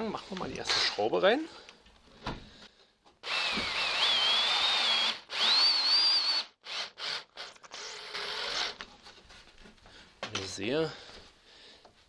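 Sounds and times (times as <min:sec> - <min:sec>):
drill-driver motor whine: 0:03.2 - 0:08.8.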